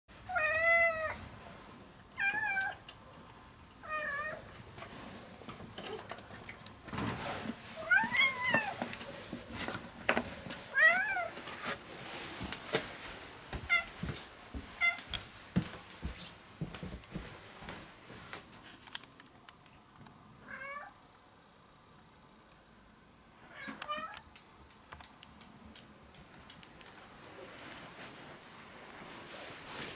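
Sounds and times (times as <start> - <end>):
small clicks and knocks: 23.7 - 27.0.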